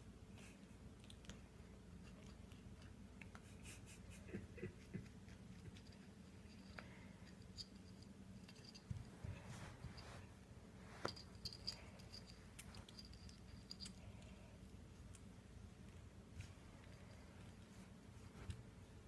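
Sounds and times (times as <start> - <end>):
low steady hum: 0.0 - 19.0
kitten scratching on carpet: 8.8 - 11.6.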